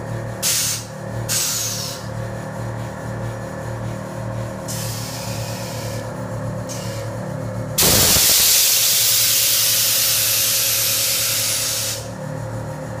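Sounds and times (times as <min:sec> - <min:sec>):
air suspension hissing: 0:07.8 - 0:12.0.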